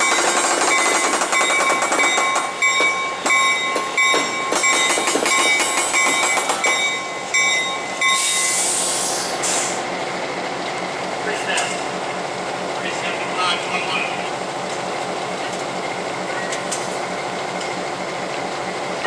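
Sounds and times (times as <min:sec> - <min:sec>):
locomotive bell ringing: 0:00.0 - 0:08.8
compressed air hissing: 0:08.2 - 0:09.9.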